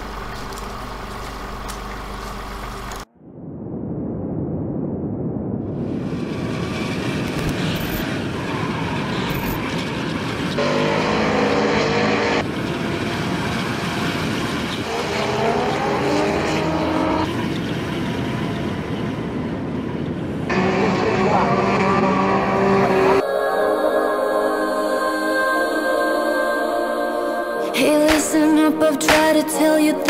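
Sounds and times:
dense noise haze: 0:00.0 - 0:10.6
car engines revving: 0:06.1 - 0:23.2.

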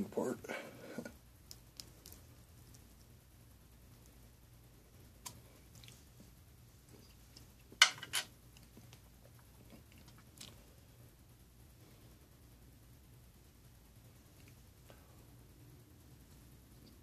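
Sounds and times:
person chewing: 0:05.2 - 0:06.1, 0:08.5 - 0:10.7.

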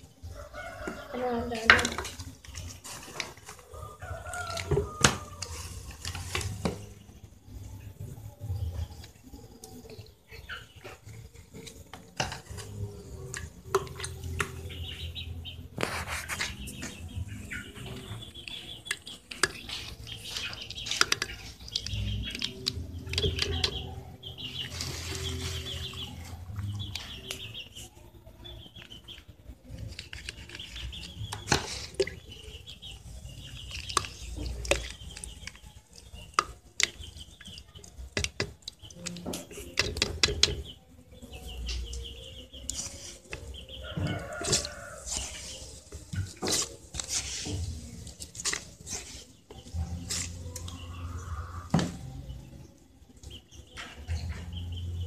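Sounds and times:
birds chirping: 0:00.0 - 0:55.0
spoon and plastic pitcher clinking: 0:17.8 - 0:27.8, 0:29.8 - 0:40.8, 0:42.7 - 0:50.8.

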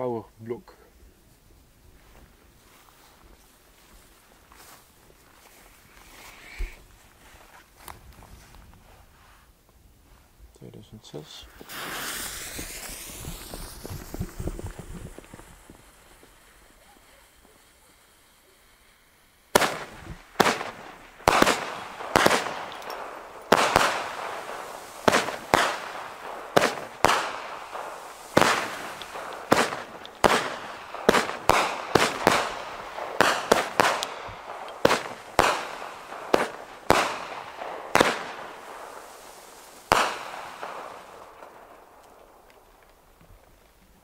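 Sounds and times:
fireworks bangs with echo: 0:11.1 - 0:43.1.

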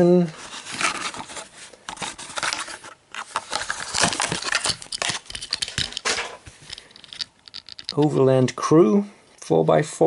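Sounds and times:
plastic packaging crackling: 0:02.0 - 0:06.9.

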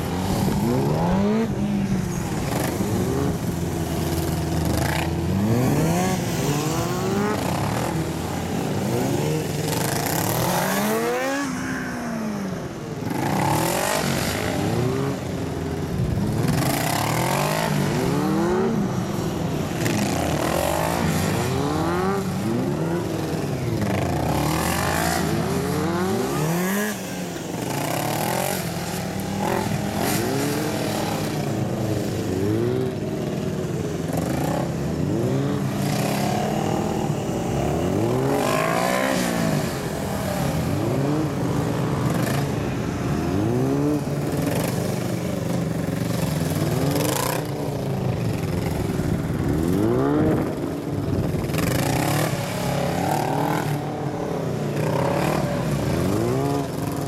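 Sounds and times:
motorcycle engine revving: 0:00.0 - 0:12.4, 0:13.0 - 0:57.0.

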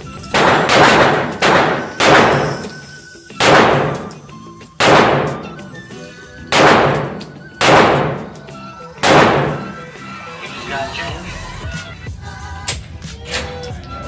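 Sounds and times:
pistol shots echoing indoors: 0:00.2 - 0:05.6, 0:06.5 - 0:08.4, 0:09.0 - 0:09.8.

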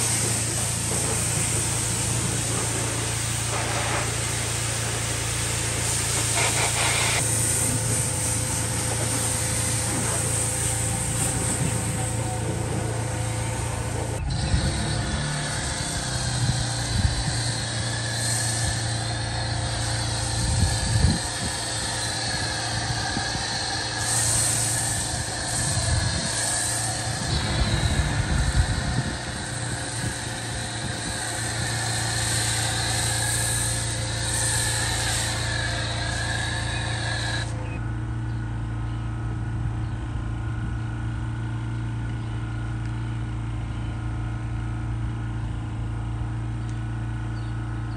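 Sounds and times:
foam cannon spraying hiss: 0:00.0 - 0:37.8
pressure washer humming: 0:00.0 - 0:39.6.

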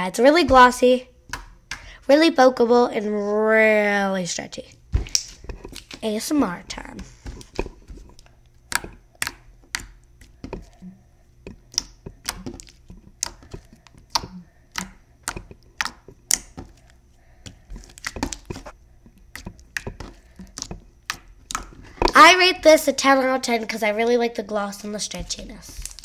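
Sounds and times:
slime squishing with sticky clicks: 0:04.7 - 0:06.1, 0:06.7 - 0:22.8.

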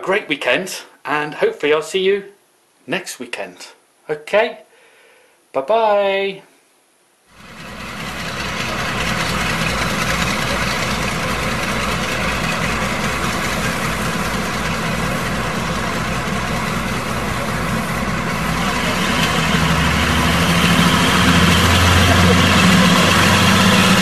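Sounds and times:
engine idling: 0:07.4 - 0:24.0.

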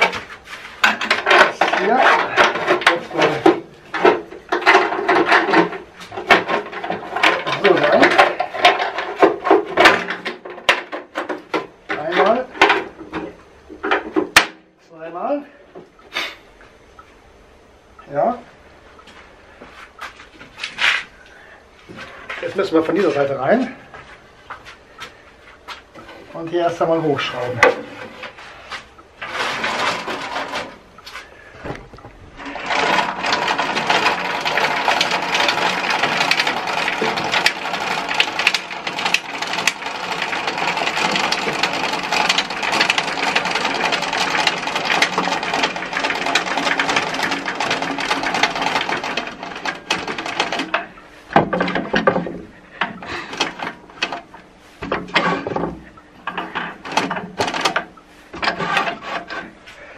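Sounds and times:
handwheel cranking clatter: 0:04.0 - 0:10.4, 0:32.4 - 0:52.3.

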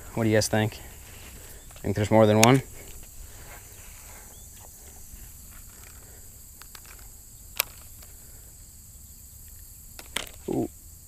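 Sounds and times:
insects humming: 0:00.0 - 0:11.0.

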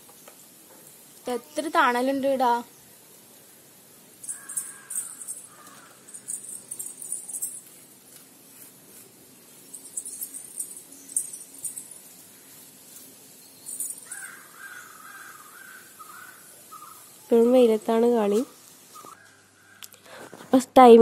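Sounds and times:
birds chirping: 0:01.3 - 0:07.6, 0:09.2 - 0:20.4
wavering bird call: 0:04.3 - 0:06.3, 0:13.9 - 0:17.4, 0:18.9 - 0:19.9.

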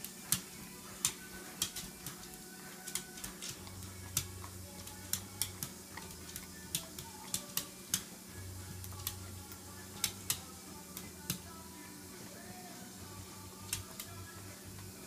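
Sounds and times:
teeth clicking on metal wires: 0:00.0 - 0:08.1, 0:08.8 - 0:09.3, 0:10.0 - 0:11.5, 0:13.6 - 0:14.2
dog licking metal beater: 0:00.0 - 0:11.6.

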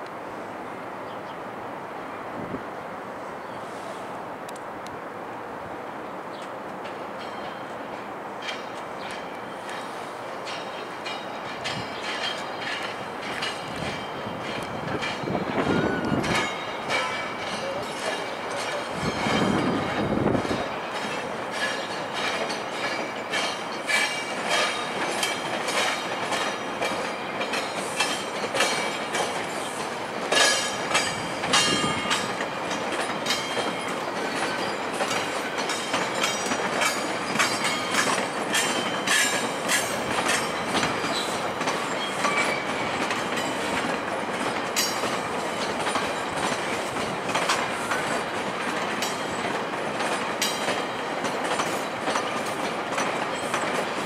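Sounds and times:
train wheels clacking over tracks: 0:06.4 - 0:54.0
high wheel squeals: 0:35.7 - 0:43.7.

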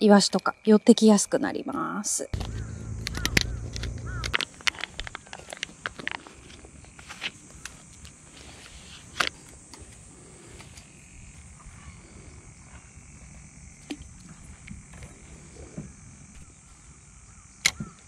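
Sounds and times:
sharp click: 0:02.4 - 0:05.2.

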